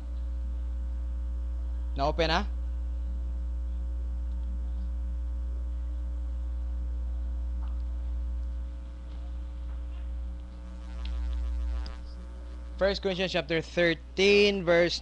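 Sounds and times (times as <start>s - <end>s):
electrical mains hum: 0.0s - 15.0s
faint ticks: 10.4s - 12.1s.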